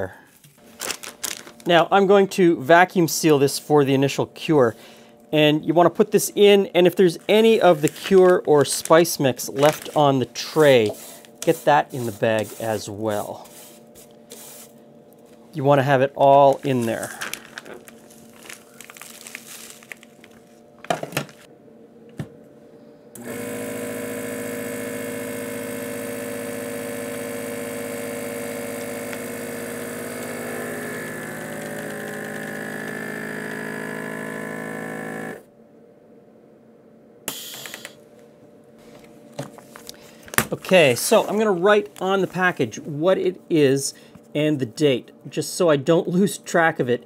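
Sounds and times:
vacuum sealer pump running: 0:00.0 - 0:01.9, 0:07.1 - 0:15.4, 0:16.4 - 0:21.5, 0:23.1 - 0:35.5, 0:37.3 - 0:38.0.

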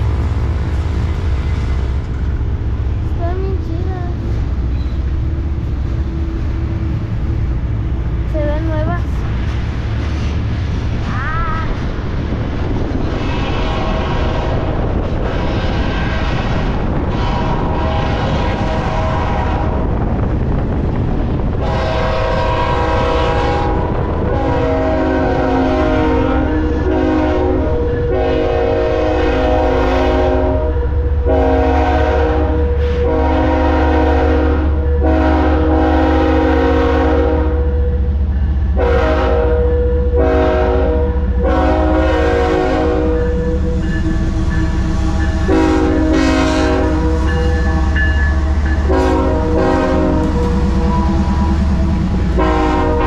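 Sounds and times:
train rumbling past: 0:00.0 - 0:53.0
locomotive air horn blasts: 0:13.2 - 0:14.7, 0:15.3 - 0:19.9, 0:21.6 - 0:38.1, 0:38.8 - 0:43.9, 0:45.0 - 0:48.1, 0:48.9 - 0:53.0.

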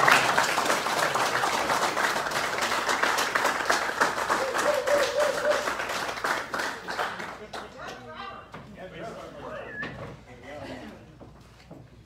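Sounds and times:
audience applauding: 0:00.0 - 0:08.1.

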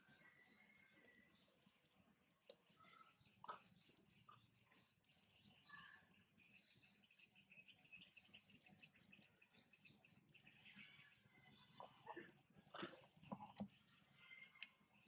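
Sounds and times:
short insect chirps: 0:00.0 - 0:01.5.

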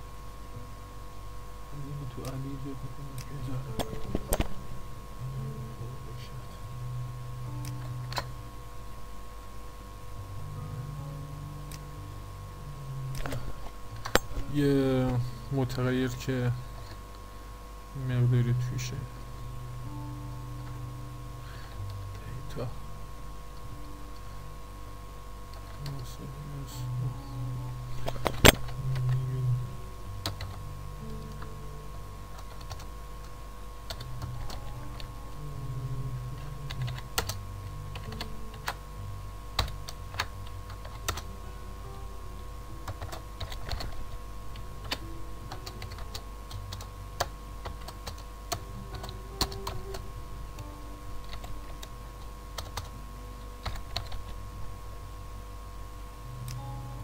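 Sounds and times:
computer keyboard typing: 0:30.2 - 0:30.6, 0:32.3 - 0:32.9, 0:36.7 - 0:38.8, 0:39.6 - 0:41.3, 0:42.8 - 0:50.0, 0:51.2 - 0:51.9, 0:52.6 - 0:52.9, 0:53.6 - 0:54.4.

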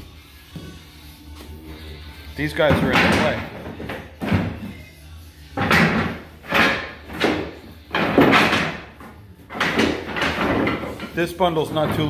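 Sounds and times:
wooden planks clattering: 0:02.7 - 0:04.6, 0:05.6 - 0:12.0.

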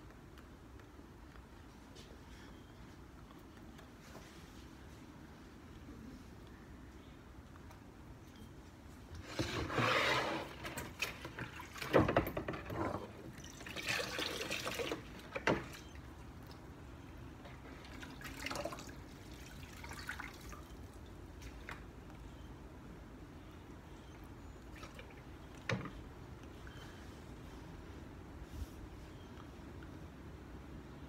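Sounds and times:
water splashing in a bucket: 0:17.8 - 0:20.8.

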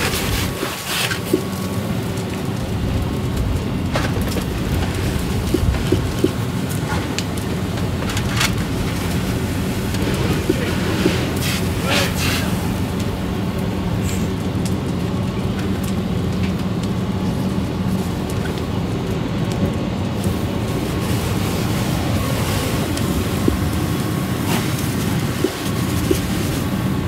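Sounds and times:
fire engine rumbling: 0:00.0 - 0:27.0.

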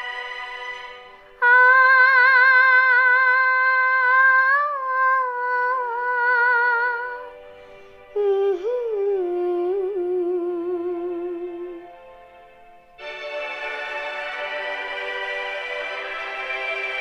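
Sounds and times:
girl singing without words: 0:01.2 - 0:12.0.

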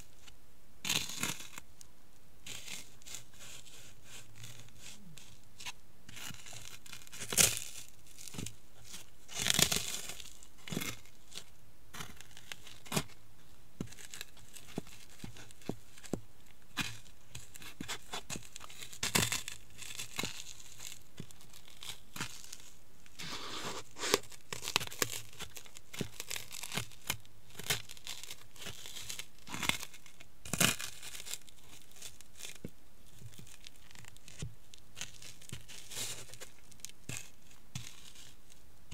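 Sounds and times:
snacks crunching under shoes: 0:13.8 - 0:38.6.

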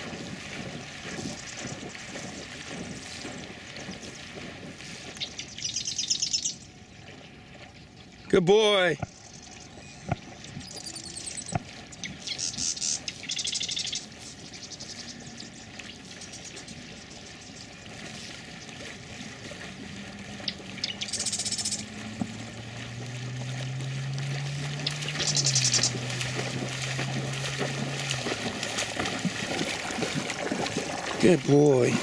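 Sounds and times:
dog splashing in water: 0:00.0 - 0:06.0, 0:09.0 - 0:32.0
low steady drone: 0:14.8 - 0:30.4.

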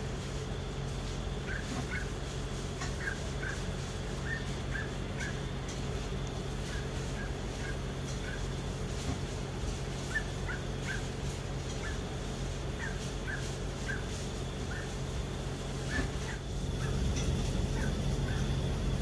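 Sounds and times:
low background hum: 0:00.0 - 0:19.0
short high animal calls: 0:02.8 - 0:05.5.

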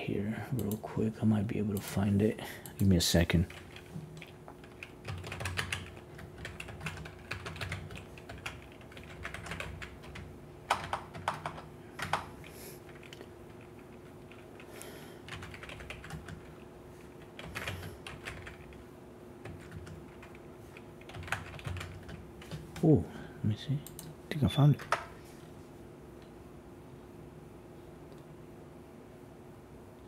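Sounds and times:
faint steady hum: 0:00.0 - 0:30.0
keyboard typing: 0:02.7 - 0:16.6, 0:17.2 - 0:18.8, 0:19.4 - 0:22.9.

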